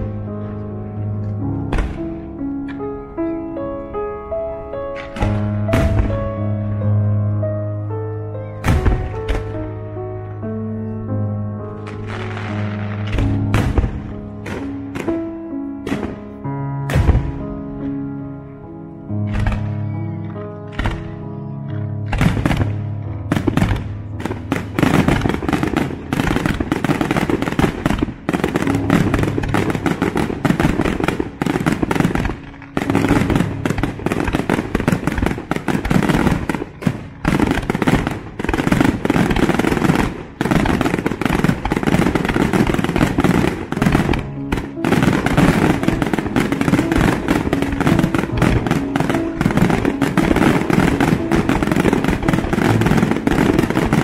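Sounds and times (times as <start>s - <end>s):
music: 0.0s - 54.0s
fireworks bursting and crackling: 4.9s - 7.0s, 8.6s - 9.8s, 11.8s - 17.9s, 19.2s - 19.9s, 20.7s - 21.3s, 22.0s - 54.0s.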